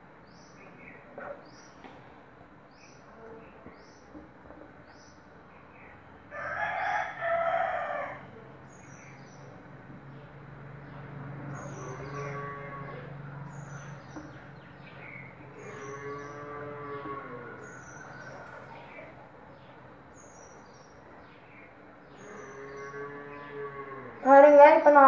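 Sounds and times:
rooster crowing: 6.3s - 8.4s.

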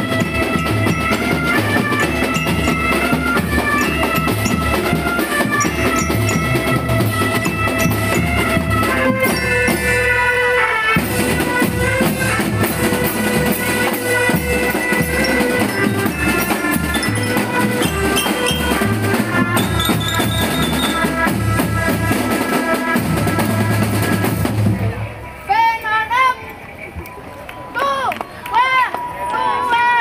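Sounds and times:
bass and snare drums: 0.0s - 10.3s, 11.0s - 25.1s
melody of held notes: 0.0s - 21.3s.

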